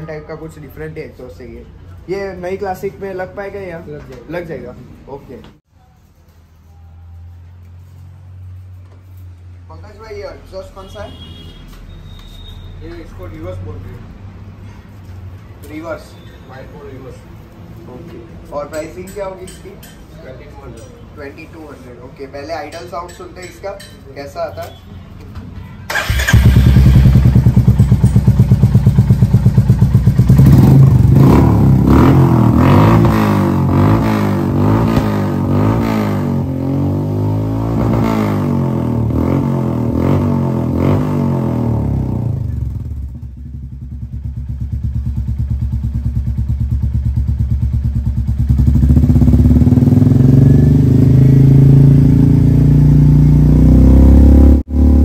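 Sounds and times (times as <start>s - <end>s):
motorcycle engine idling and revving: 25.9s - 55.0s.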